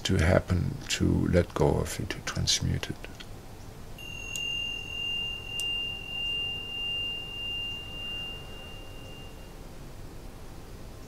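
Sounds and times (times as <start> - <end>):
low background hum: 0.0 - 11.0
high pure ringing tone: 3.9 - 11.0.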